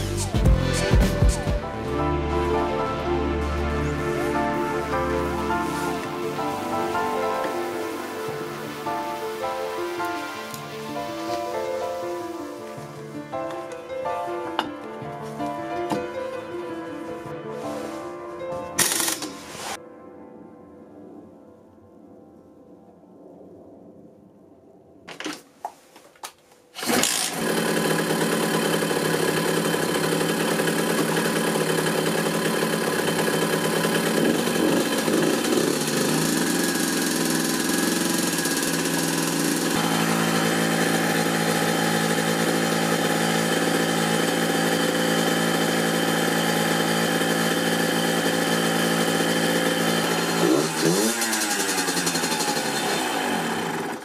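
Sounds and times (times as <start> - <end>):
engine cranking: 26.8 - 54.0
two-stroke moped engine idling: 26.8 - 54.0.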